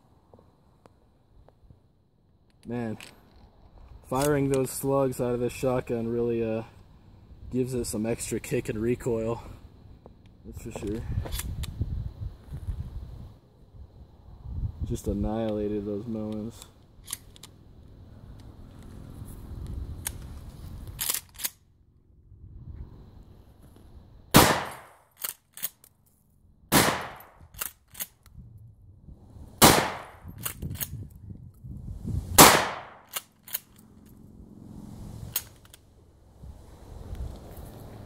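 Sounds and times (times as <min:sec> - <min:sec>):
shotgun pump racking clacks: 0:21.0 - 0:21.6, 0:25.2 - 0:25.9, 0:33.0 - 0:33.8
shotgun blasts: 0:24.3 - 0:25.0, 0:26.7 - 0:27.4, 0:29.6 - 0:30.3, 0:32.4 - 0:33.1.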